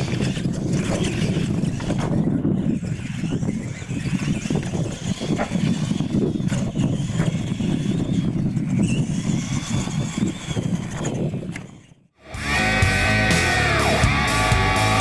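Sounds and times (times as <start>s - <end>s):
toy trucks knocking over ramps: 0.0s - 12.0s
electric motors whining: 0.0s - 15.0s
music: 12.2s - 15.0s.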